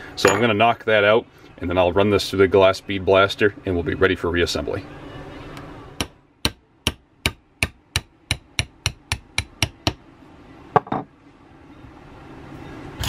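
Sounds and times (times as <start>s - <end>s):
ringing metal clink: 0.2s - 0.5s.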